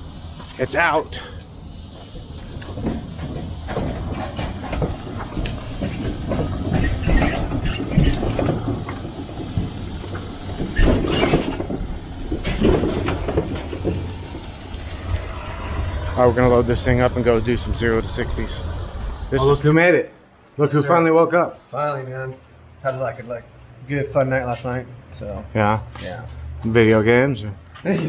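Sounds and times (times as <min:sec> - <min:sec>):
truck engine running: 0:00.0 - 0:19.6
trailer rattling and clanking: 0:00.0 - 0:20.0.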